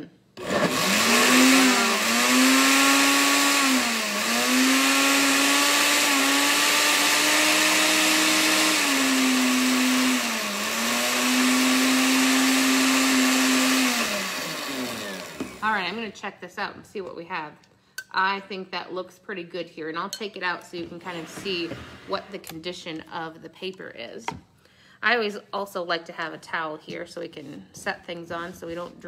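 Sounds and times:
blender churning paper pulp: 0:00.4 - 0:15.9.

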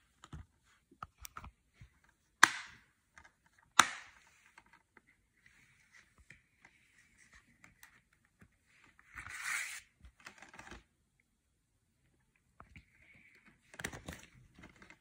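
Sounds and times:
plastic case clicks and taps: 0:02.4 - 0:02.8.

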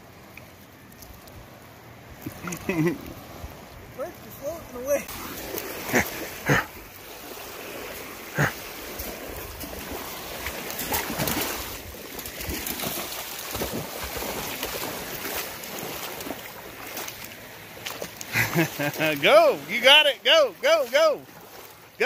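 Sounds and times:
lake water lapping at shore: 0:00.0 - 0:22.0
dog splashing in water: 0:05.1 - 0:19.0.

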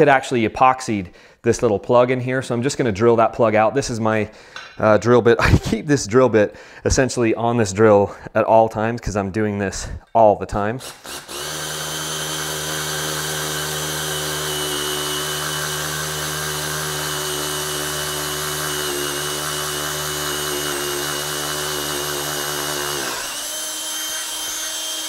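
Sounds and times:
cordless drill drilling: 0:10.8 - 0:25.0.

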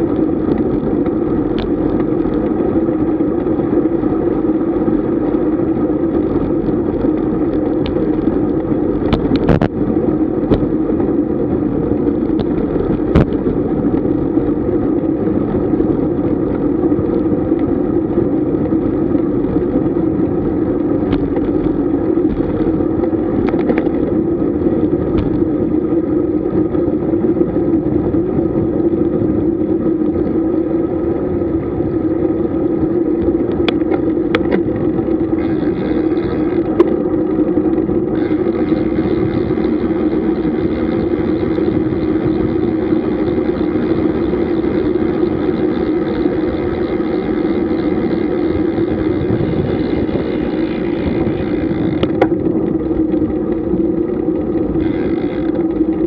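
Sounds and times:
bike road noise: 0:00.0 - 0:56.0.

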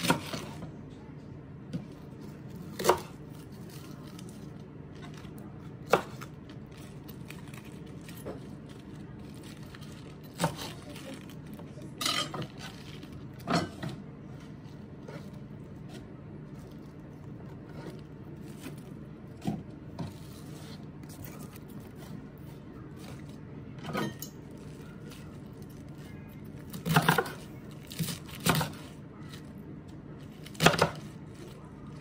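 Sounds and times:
low steady hum: 0:00.0 - 0:32.0
knife cutting cabbage on board: 0:02.6 - 0:04.3, 0:26.7 - 0:29.4, 0:30.4 - 0:31.6.

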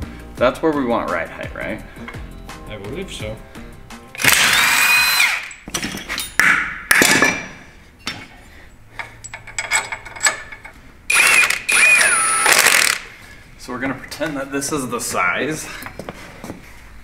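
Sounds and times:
impact wrench bursts: 0:04.2 - 0:05.6, 0:11.1 - 0:13.1
metal tools clinking: 0:05.5 - 0:06.4, 0:09.0 - 0:10.8.

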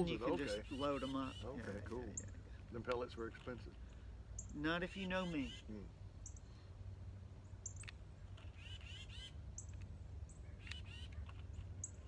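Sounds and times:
birds chirping: 0:00.0 - 0:12.0
longer lower bird calls: 0:07.4 - 0:12.0.

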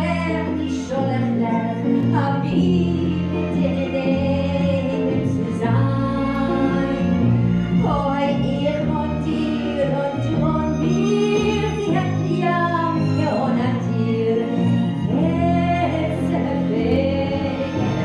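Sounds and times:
double bass: 0:00.0 - 0:18.0
guitar: 0:00.0 - 0:18.0
woman singing sliding notes: 0:07.8 - 0:18.0.

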